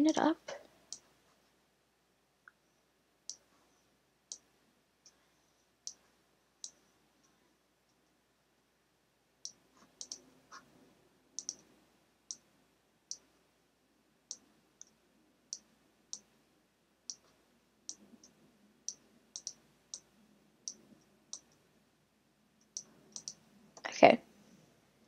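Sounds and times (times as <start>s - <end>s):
computer mouse clicking: 4.3s - 4.5s, 6.6s - 6.8s, 9.4s - 10.3s, 11.4s - 11.7s, 12.3s - 12.5s, 14.3s - 16.3s, 17.1s - 17.3s, 17.9s - 21.6s, 22.6s - 23.4s.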